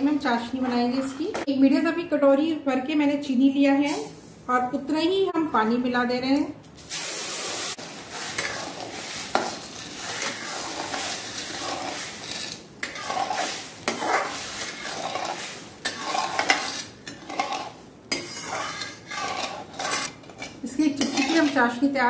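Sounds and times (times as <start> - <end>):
spoon scraping sugar in pan: 7.0 - 22.0.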